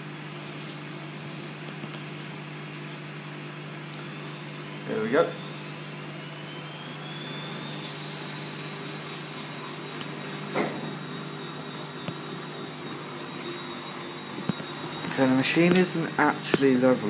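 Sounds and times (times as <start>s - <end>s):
washing machine motor whine: 0.0s - 17.0s
washing machine squeak: 4.1s - 17.0s.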